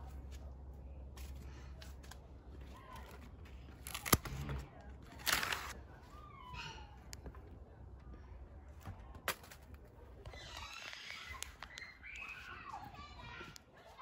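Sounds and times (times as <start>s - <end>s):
garden scissors snipping: 3.8s - 4.6s.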